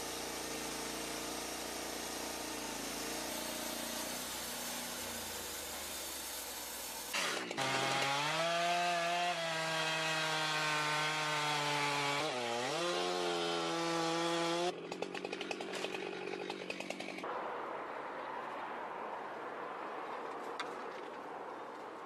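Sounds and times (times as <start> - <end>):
chainsaw cutting tree trunk: 0.0 - 17.3
chainsaw idling: 14.2 - 17.2.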